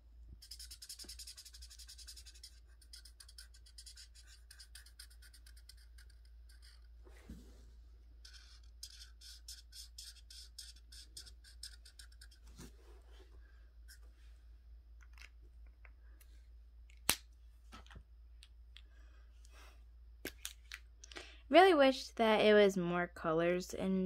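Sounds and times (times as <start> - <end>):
colouring strokes on paper: 0.4 - 13.2.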